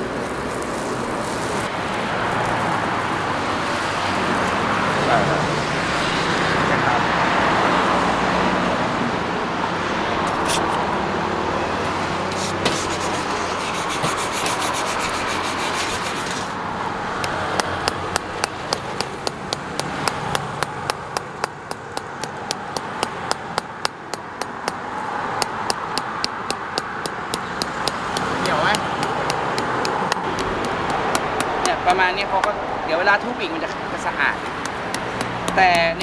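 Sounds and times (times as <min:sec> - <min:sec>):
brush scrubbing skin: 0:12.3 - 0:16.6.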